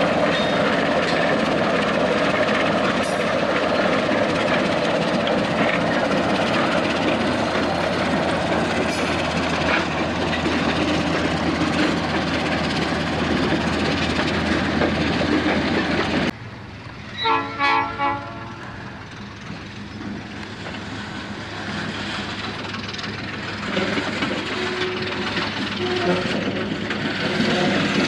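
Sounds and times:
diesel locomotive engine: 0:00.0 - 0:28.0
freight cars rolling by: 0:00.0 - 0:28.0
whiny air horn blasts: 0:17.2 - 0:18.6.

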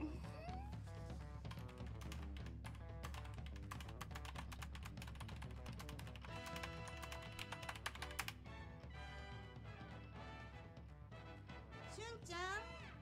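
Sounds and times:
background music: 0:00.0 - 0:13.0
typing on computer keyboard: 0:01.5 - 0:08.4.

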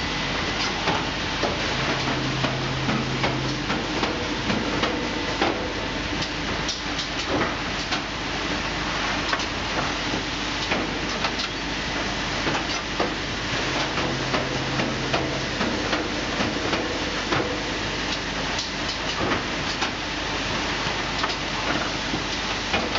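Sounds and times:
packing machine running: 0:00.0 - 0:22.9
short low hum: 0:01.4 - 0:06.5, 0:13.3 - 0:17.7.

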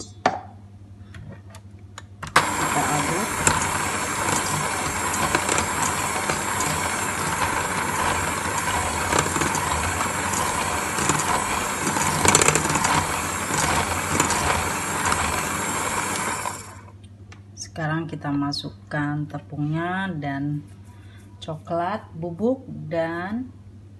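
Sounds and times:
electric hand mixer whisking: 0:02.3 - 0:16.9.

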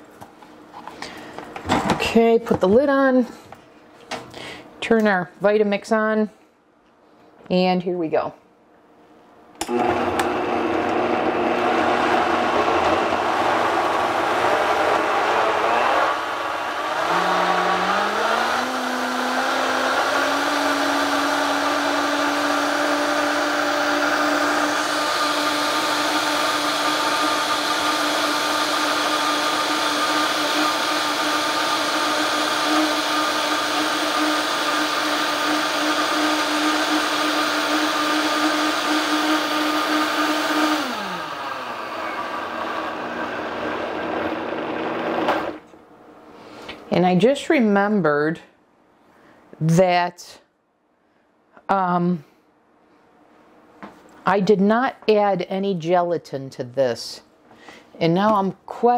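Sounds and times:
blender motor running: 0:09.6 - 0:45.6.

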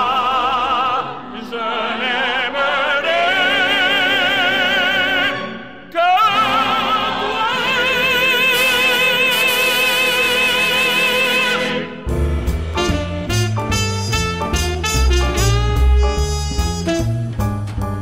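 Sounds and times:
instrumental accompaniment: 0:06.2 - 0:18.0.

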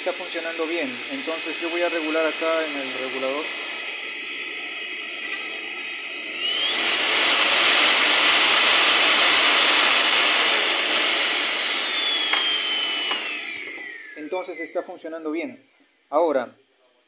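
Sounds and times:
vacuum cleaner motor whining: 0:00.0 - 0:14.8.

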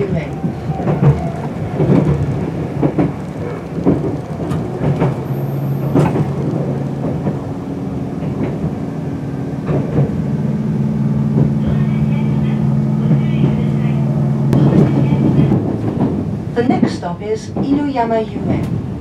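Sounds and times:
wheels knocking over rail joints: 0:00.0 - 0:08.8
train rumble: 0:00.0 - 0:19.0.

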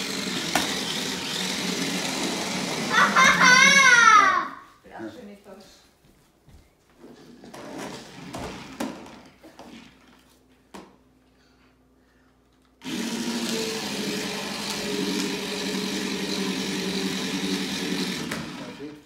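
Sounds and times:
toy car electric motors whirring: 0:00.0 - 0:04.2, 0:12.8 - 0:19.0.

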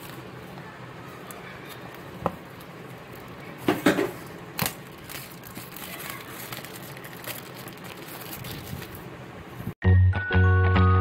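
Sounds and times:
loud sharp plastic crackles: 0:01.2 - 0:09.1
plastic wrap tearing and crinkling: 0:04.2 - 0:09.1.

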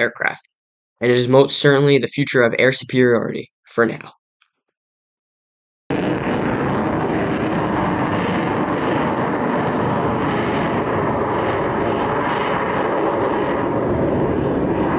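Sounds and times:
fighter jet flying: 0:05.9 - 0:14.9.

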